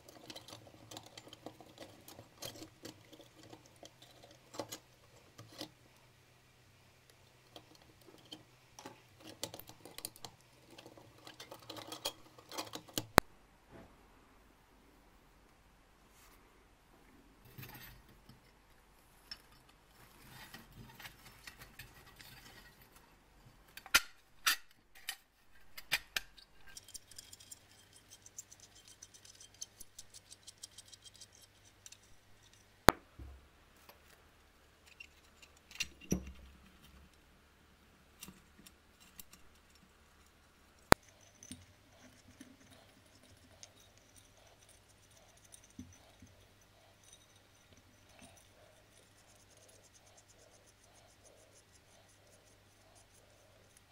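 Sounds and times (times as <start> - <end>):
metal parts clicking and clinking: 23.7 - 32.7.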